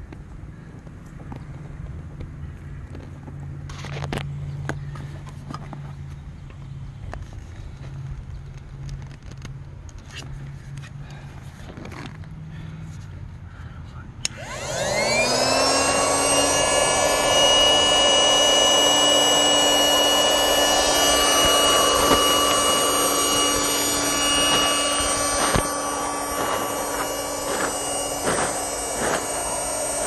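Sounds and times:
electric air pump whining: 14.2 - 30.0.

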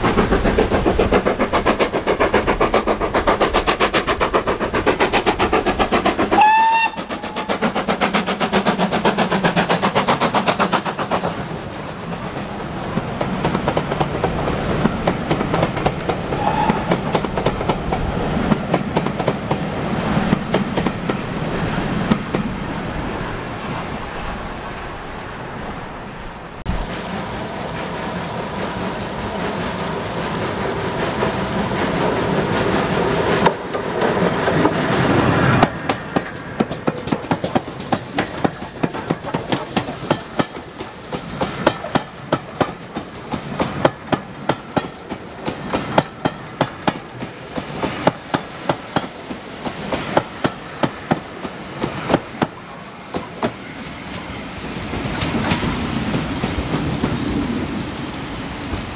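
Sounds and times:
steam train running noise: 0.0 - 23.2, 26.6 - 58.9
wheels clicking over rail joints: 29.3 - 57.7.

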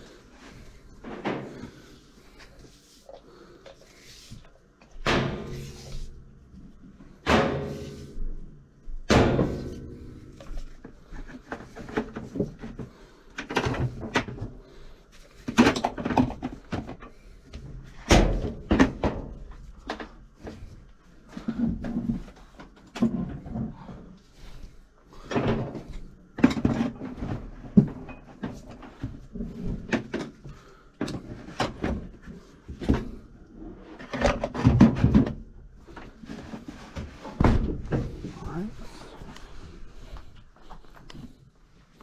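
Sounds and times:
loud knocks on washing machine: 9.0 - 9.8
tools and buckets clattering: 34.0 - 39.2.

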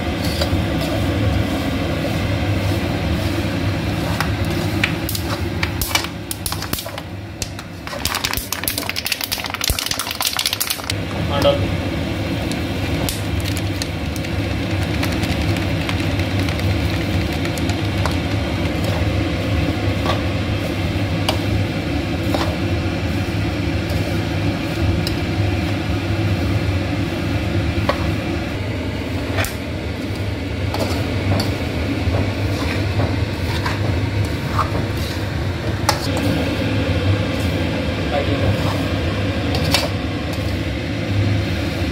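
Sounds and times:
fan-like mechanical hum: 0.0 - 41.9.

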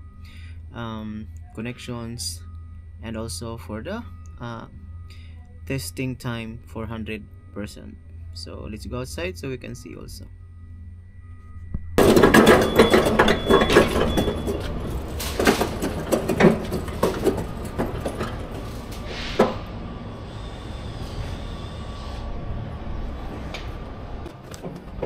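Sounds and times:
hand trolley rattling over bricks: 12.0 - 19.1.

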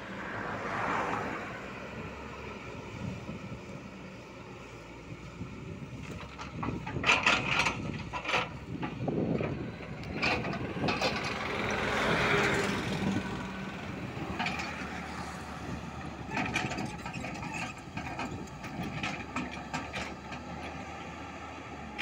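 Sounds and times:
excavator diesel engine: 0.0 - 22.0
metallic clanks and rattles: 6.2 - 11.4.

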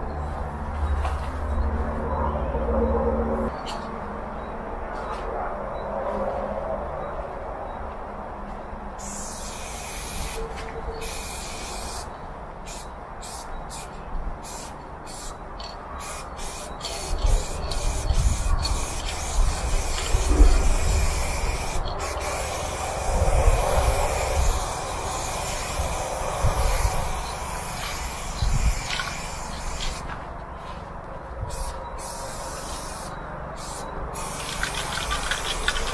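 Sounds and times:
spray paint can hissing: 9.0 - 30.1, 31.5 - 35.9.

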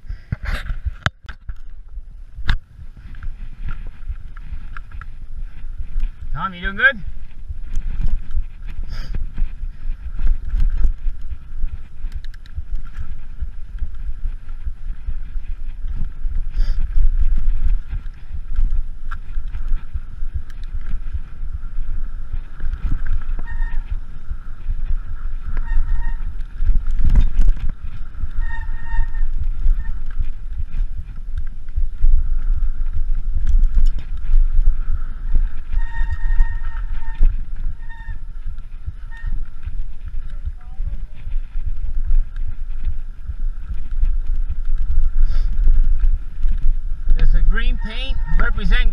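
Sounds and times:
bike tyres rumbling: 0.0 - 48.9
wind buffeting microphone: 0.0 - 48.9
brief squeals: 25.5 - 26.4, 35.7 - 38.2, 47.7 - 48.6.

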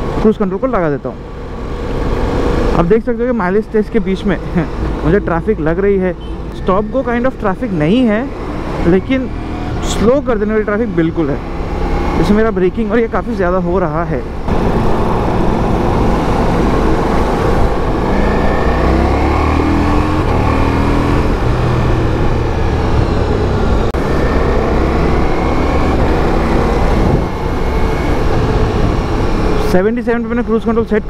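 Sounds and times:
motorcycle engine accelerating: 7.6 - 30.5
wind noise: 14.3 - 29.7.

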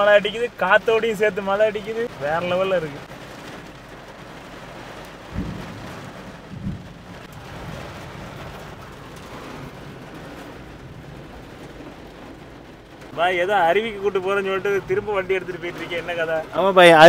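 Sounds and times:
rain and hail on car: 0.0 - 17.0
low thumps: 5.2 - 13.1.

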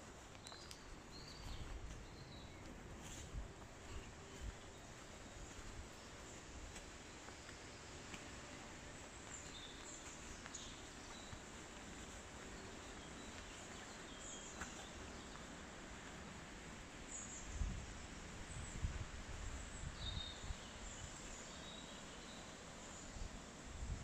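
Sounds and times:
wind rumbling on microphone: 17.3 - 21.4, 23.1 - 24.0.

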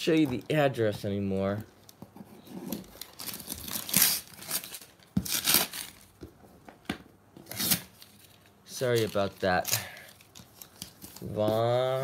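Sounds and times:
tape and cardboard tearing: 2.4 - 6.1, 7.4 - 8.2.

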